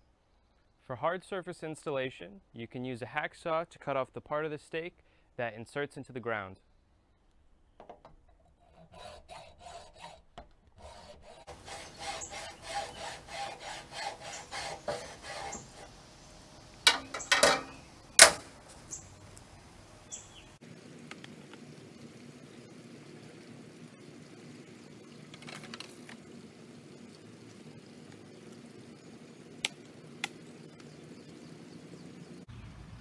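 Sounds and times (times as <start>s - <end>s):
hacksaw cutting: 8.7s - 10.2s, 10.8s - 16.0s.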